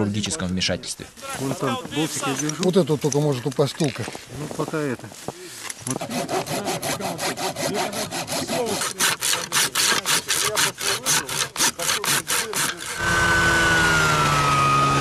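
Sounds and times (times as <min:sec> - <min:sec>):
hand saw cutting: 0:05.6 - 0:15.0
snowmobile engine running: 0:13.0 - 0:15.0.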